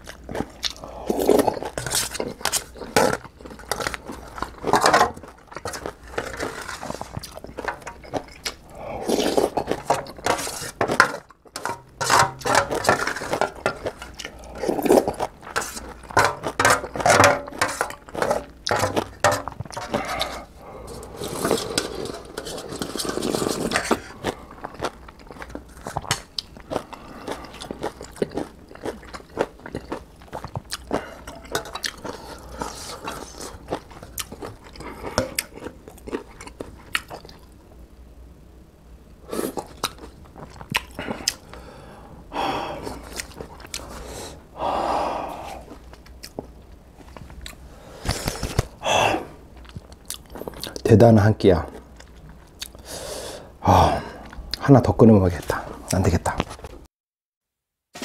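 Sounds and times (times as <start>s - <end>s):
slurping broth: 5.7s - 10.8s, 19.7s - 24.5s
wooden spoon scraping metal bowl: 9.1s - 14.2s, 14.8s - 24.0s.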